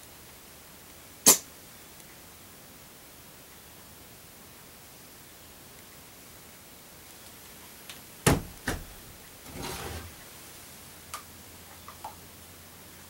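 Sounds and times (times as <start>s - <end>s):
knocks on wooden countertop: 8.3s - 8.9s.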